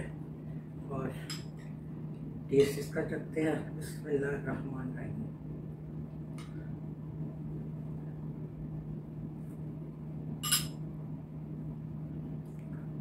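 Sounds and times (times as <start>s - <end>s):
low room hum: 0.0s - 13.0s
metal spoon clinking on bowl: 10.4s - 10.8s.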